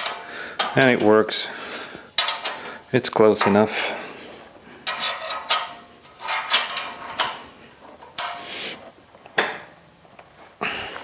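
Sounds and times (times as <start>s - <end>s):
wrench clinking on bolt: 4.8s - 7.4s.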